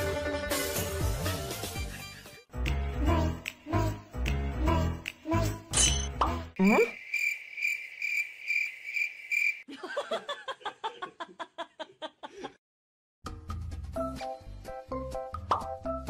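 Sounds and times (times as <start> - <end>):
background music: 0.0 - 6.6, 13.2 - 16.0
cricket chirping sound effect: 5.8 - 9.7.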